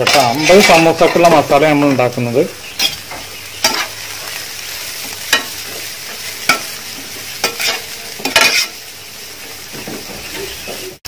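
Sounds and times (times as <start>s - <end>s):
spatula scraping and knocking pan: 0.0s - 2.1s, 2.8s - 4.4s, 5.0s - 8.8s
vegetables sizzling in hot oil: 0.0s - 11.0s.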